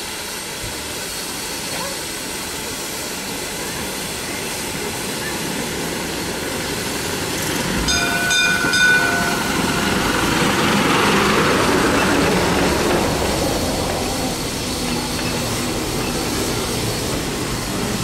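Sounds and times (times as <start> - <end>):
brass bell ringing: 7.9 - 10.2.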